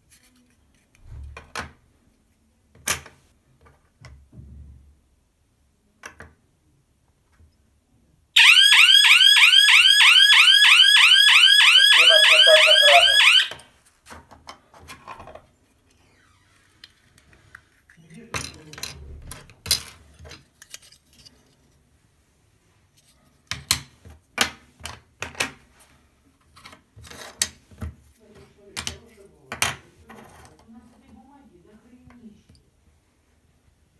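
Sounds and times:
electronic alarm siren: 8.4s - 13.6s.

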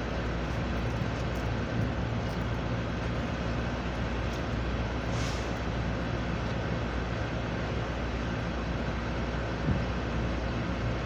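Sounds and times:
air conditioning units humming: 0.0s - 11.0s
brief hiss: 5.1s - 5.6s.

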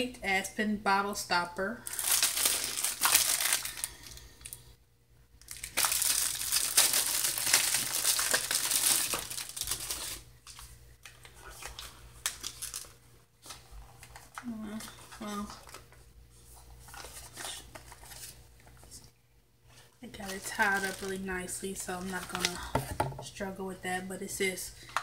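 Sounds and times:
plastic wrapping crinkling and tearing: 1.8s - 4.6s, 5.4s - 16.0s, 16.8s - 18.8s, 20.1s - 22.7s.

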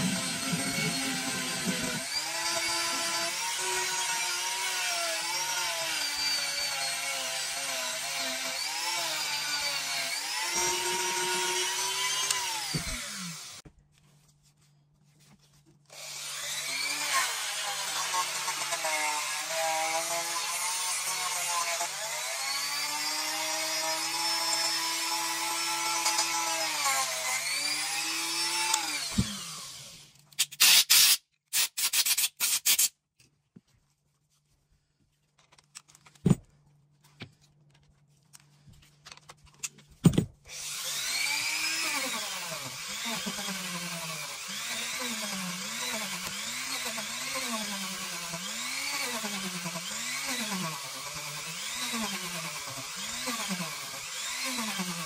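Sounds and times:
rotary tool whining: 0.0s - 13.6s, 15.9s - 30.2s, 40.5s - 55.0s.

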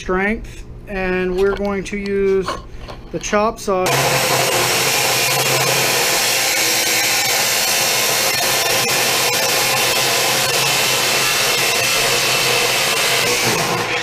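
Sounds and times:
saw blade grinding through steel: 3.9s - 14.0s.

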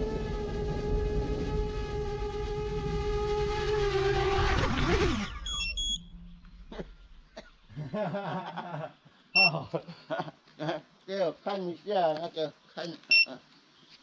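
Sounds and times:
drone motors whining: 0.0s - 7.3s
short high beeps: 5.3s - 6.3s, 9.4s - 9.6s.

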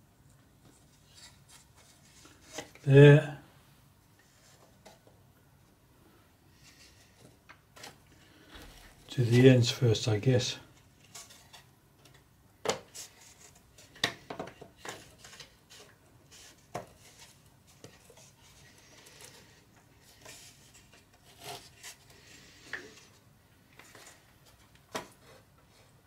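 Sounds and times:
soft wood scraping: 6.5s - 9.7s, 14.8s - 26.0s.

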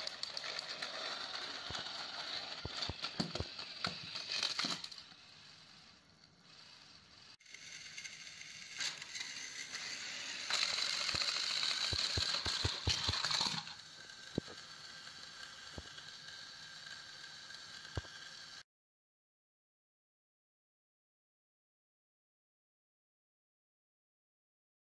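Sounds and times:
toy train motors whirring: 0.0s - 18.6s
toy trains clicking and knocking: 0.0s - 18.6s.

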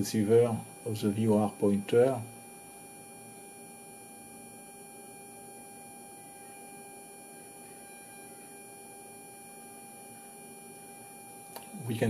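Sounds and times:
faint electrical hum: 0.0s - 12.0s
high-pitched whine: 0.0s - 12.0s.

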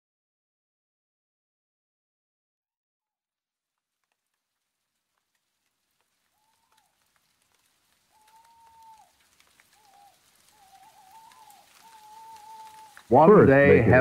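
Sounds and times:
faint clicks: 3.8s - 13.2s.

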